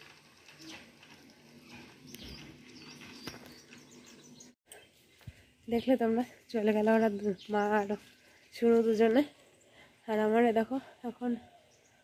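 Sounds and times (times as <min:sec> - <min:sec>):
small birds chirping: 0:01.6 - 0:10.1.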